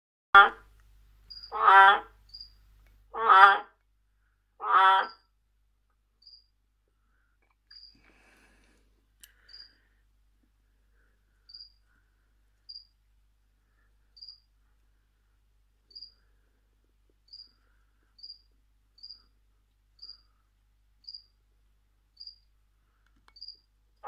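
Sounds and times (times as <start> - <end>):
cricket chirping: 1.3 - 1.6, 2.3 - 2.6, 6.2 - 6.6, 7.7 - 8.0, 9.4 - 9.8, 11.5 - 11.8, 12.7 - 12.9, 14.2 - 14.5, 15.9 - 16.3, 17.2 - 19.3, 20.0 - 20.4, 21.0 - 21.4, 22.1 - 22.5, 23.4 - 23.7.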